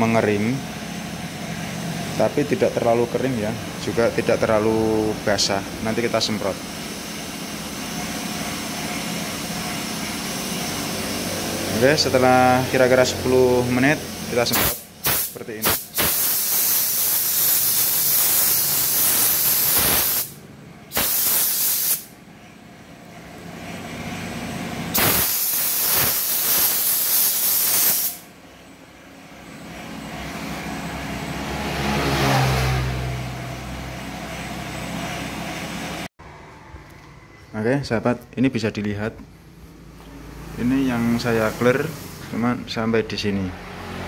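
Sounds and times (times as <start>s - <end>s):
spray gun hissing: 13.2s - 22.1s, 24.9s - 28.3s, 41.2s - 42.4s.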